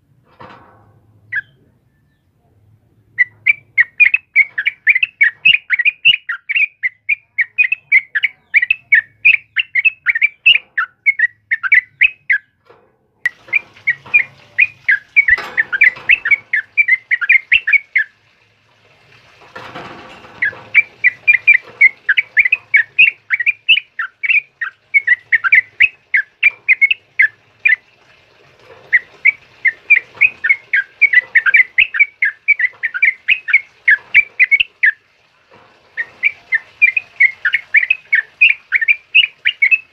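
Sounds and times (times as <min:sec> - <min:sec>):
bulbul chirping: 0:03.1 - 0:12.6, 0:13.3 - 0:18.2, 0:20.4 - 0:27.8, 0:28.9 - 0:35.0, 0:36.0 - 0:39.9.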